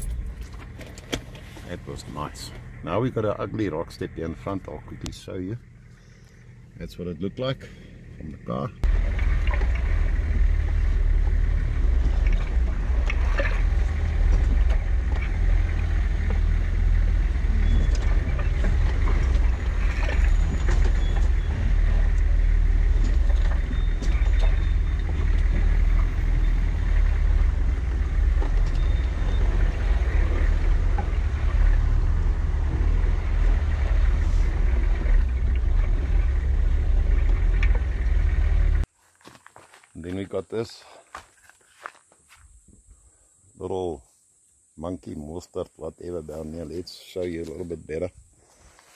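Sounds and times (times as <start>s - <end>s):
off-road vehicle engine rumble: 0.0s - 48.9s
knocks and clunks: 8.2s - 38.9s.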